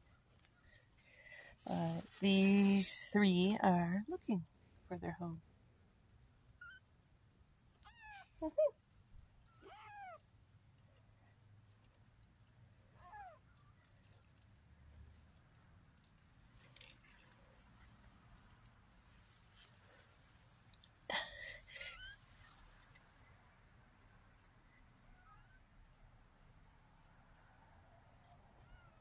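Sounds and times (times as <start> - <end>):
faint crickets chirping: 0.0 - 29.0
kittens mewing: 7.8 - 8.8, 9.5 - 10.3, 12.9 - 13.5.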